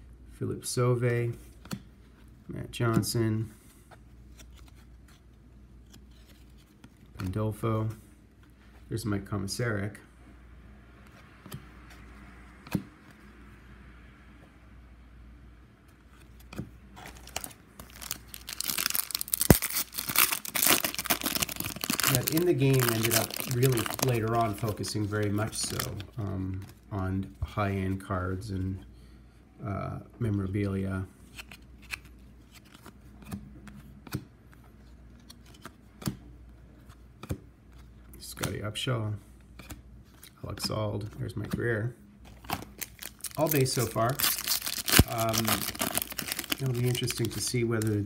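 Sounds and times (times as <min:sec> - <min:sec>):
foil wrapper crinkling and tearing: 0:17.0 - 0:26.0, 0:42.4 - 0:48.0
cards flipped with papery snaps: 0:31.3 - 0:34.3, 0:35.2 - 0:36.2.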